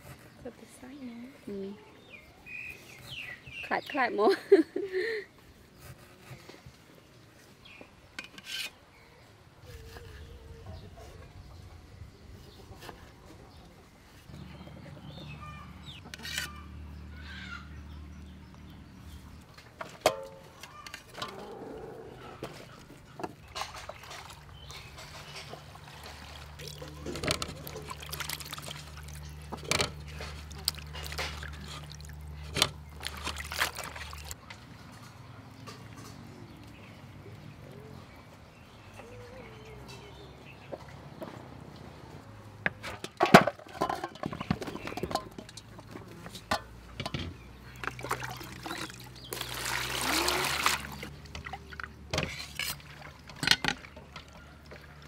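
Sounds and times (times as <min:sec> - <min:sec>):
knocks and clinks of bowls: 0:19.8 - 0:21.5, 0:43.0 - 0:48.9
water splashing: 0:23.4 - 0:35.0, 0:47.8 - 0:55.0.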